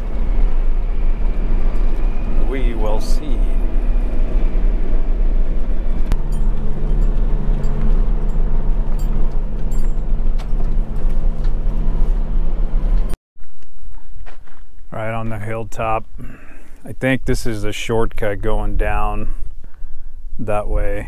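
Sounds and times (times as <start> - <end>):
truck engine running: 0.0 - 13.2
road rumble: 0.0 - 21.0.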